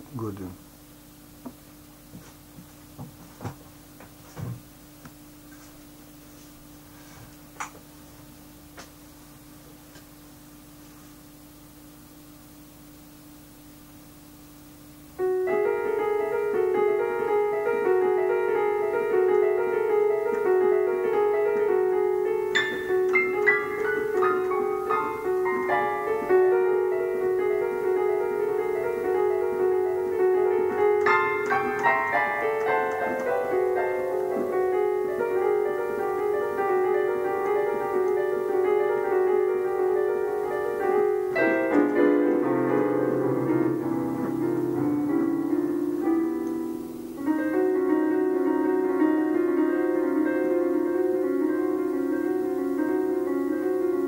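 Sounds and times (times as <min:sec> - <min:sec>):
solo piano on electronic keyboard: 0:14.9 - 0:54.0.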